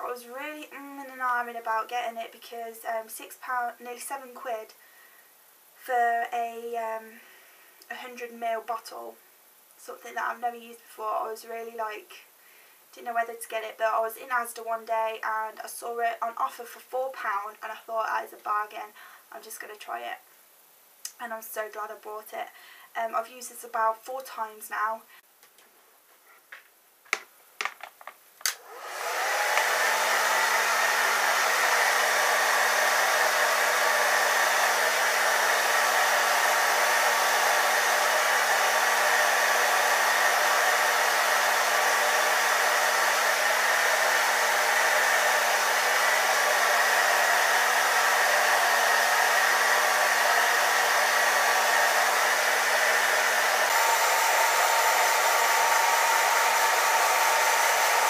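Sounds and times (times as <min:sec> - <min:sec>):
hair dryer switch clicks: 0:28.4 - 0:28.7, 0:29.4 - 0:29.9
hair dryer blowing: 0:28.4 - 0:58.0.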